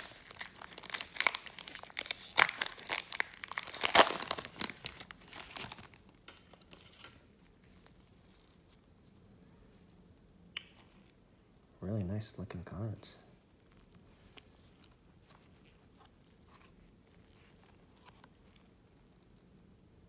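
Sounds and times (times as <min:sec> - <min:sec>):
wrapper crackling and rustling: 0:00.0 - 0:08.8, 0:13.3 - 0:19.5.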